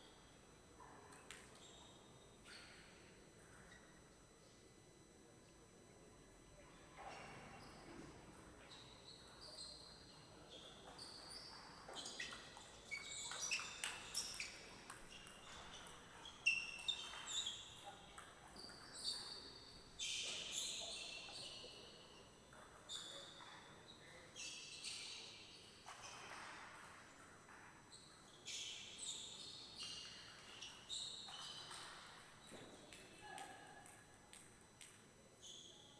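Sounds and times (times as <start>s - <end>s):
shoes squeaking on floor: 10.5s - 17.9s.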